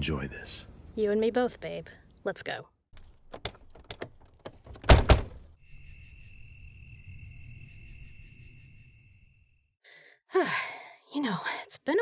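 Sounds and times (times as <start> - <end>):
door thudding: 3.2 - 5.5.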